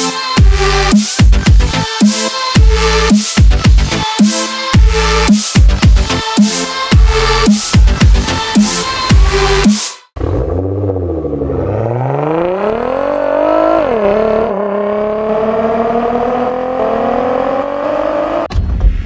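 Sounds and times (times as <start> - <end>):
car engine accelerating hard: 10.2 - 18.5.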